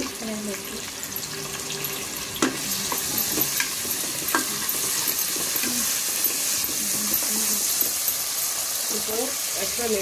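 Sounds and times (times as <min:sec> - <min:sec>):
onions sizzling in hot oil: 0:00.0 - 0:10.0
spoon scraping and knocking pot: 0:02.4 - 0:08.2.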